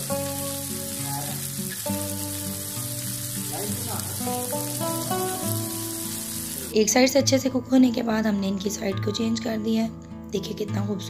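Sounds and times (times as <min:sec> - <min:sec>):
meat sizzling on a grill pan: 0:00.0 - 0:06.8
background music: 0:00.0 - 0:11.0.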